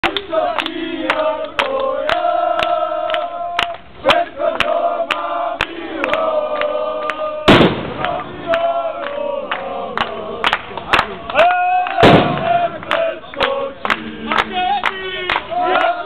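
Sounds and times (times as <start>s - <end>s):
crowd chanting and singing: 0.0s - 16.0s
loud bang: 7.5s - 8.5s, 12.0s - 12.8s.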